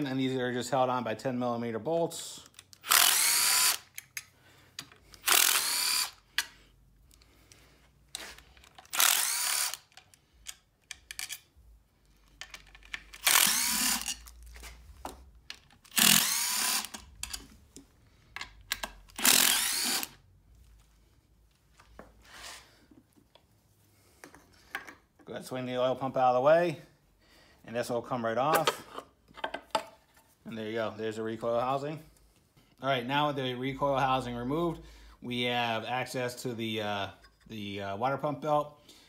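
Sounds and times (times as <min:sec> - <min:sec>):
cordless driver whirring: 0:02.8 - 0:04.0, 0:05.1 - 0:06.5, 0:08.2 - 0:10.2, 0:13.1 - 0:14.3, 0:15.8 - 0:17.5, 0:18.7 - 0:20.2.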